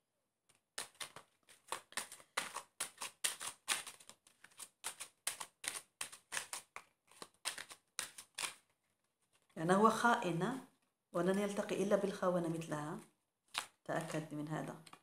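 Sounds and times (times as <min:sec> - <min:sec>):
cards being shuffled: 0:00.5 - 0:09.6, 0:13.5 - 0:15.0.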